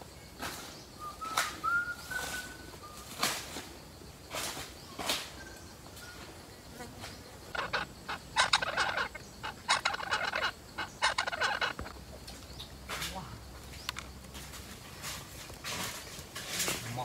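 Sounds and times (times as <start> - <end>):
parrots chattering: 7.4 - 12.7.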